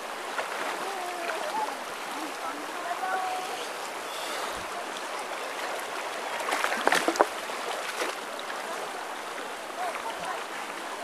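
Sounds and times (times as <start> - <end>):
shallow river water flowing: 0.0 - 11.0
legs splashing in water: 5.5 - 8.6.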